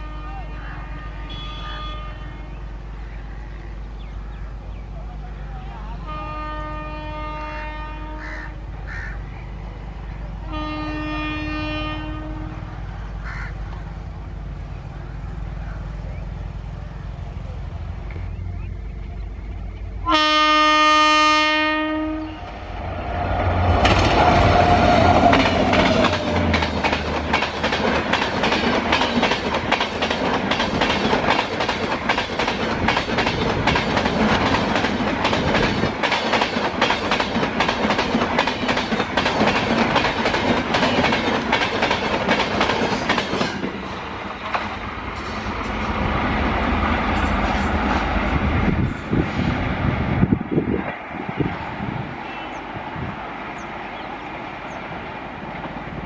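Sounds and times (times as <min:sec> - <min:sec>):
locomotive horn: 0:00.0 - 0:02.8, 0:06.0 - 0:08.6, 0:10.4 - 0:12.8, 0:20.0 - 0:26.7
train wheels clattering over rail joints: 0:23.2 - 0:46.0.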